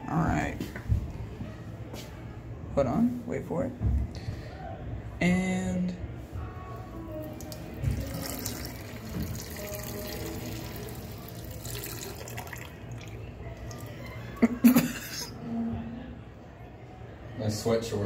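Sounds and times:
faint background music: 0.0 - 18.0
urine splashing into toilet: 7.3 - 13.9.

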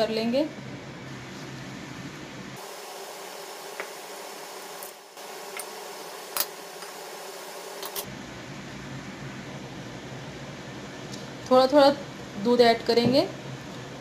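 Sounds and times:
steady hiss: 2.6 - 8.1.

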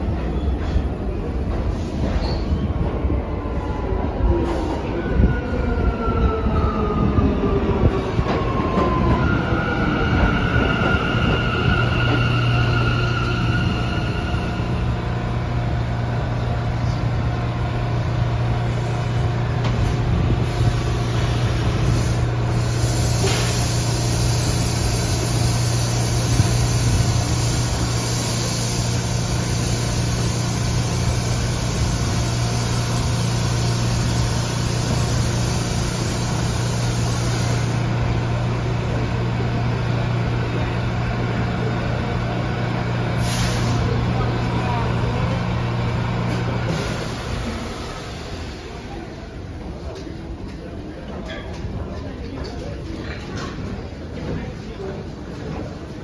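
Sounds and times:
train brakes squealing: 1.7 - 2.8, 8.5 - 15.0
standing train humming: 3.1 - 51.0.

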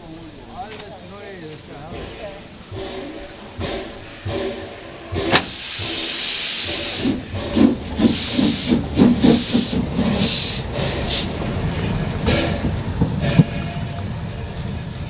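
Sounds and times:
long hiss of steam: 0.0 - 15.0
steam locomotive exhaust chuffs: 0.0 - 15.0
cylinder drain cock hissing bursts: 1.4 - 11.4.

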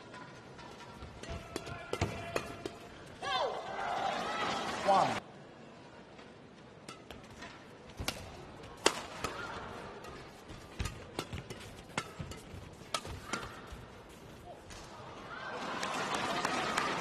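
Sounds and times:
rackets hitting a shuttlecock: 6.8 - 14.9.

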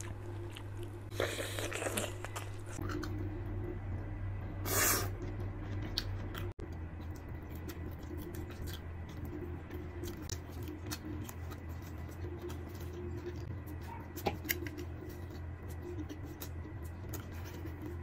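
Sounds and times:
steady low hum: 0.0 - 18.0
biting and chewing: 5.1 - 18.0.

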